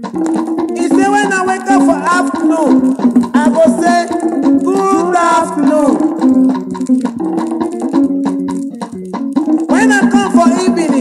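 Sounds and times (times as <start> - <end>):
highlife band playing: 0.0 - 11.0.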